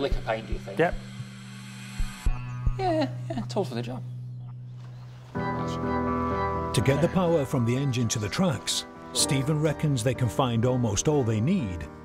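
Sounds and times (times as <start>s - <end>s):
steady low hum: 0.0s - 5.1s.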